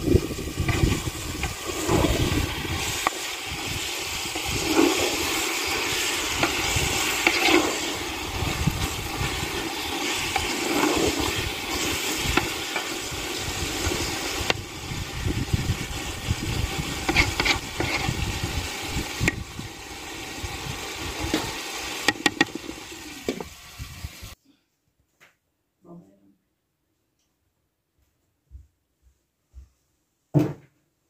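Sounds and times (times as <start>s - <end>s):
wind buffeting microphone: 0.0s - 4.7s, 8.2s - 9.6s, 11.2s - 19.7s
wood fire crackling: 0.0s - 24.3s
wooden spoon stirring pot: 3.8s - 14.6s, 16.5s - 18.5s, 22.0s - 23.5s.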